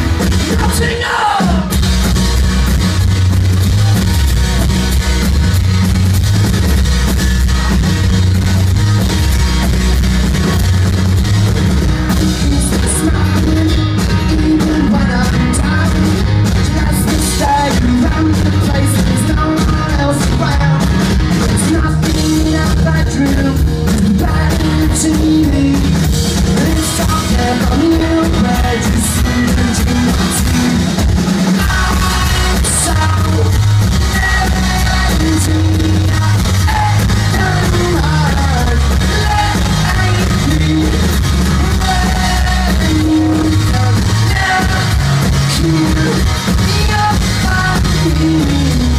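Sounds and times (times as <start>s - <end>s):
man singing lead vocal: 0.0s - 1.8s, 12.1s - 48.9s
bass guitar: 0.0s - 48.9s
drum kit: 0.0s - 48.9s
electric guitar: 0.0s - 48.9s.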